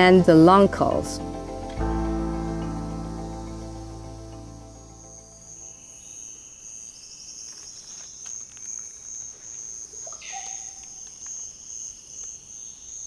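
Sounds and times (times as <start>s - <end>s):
insects high-pitched chirring: 0.0s - 13.0s
lower insect buzz: 0.9s - 13.0s
animal call: 10.1s - 10.9s.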